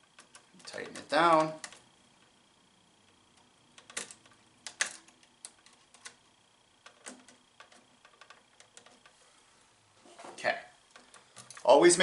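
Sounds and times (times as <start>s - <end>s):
screwdriver ticking and scraping metal: 0.0s - 2.4s, 3.1s - 9.2s, 10.9s - 11.7s.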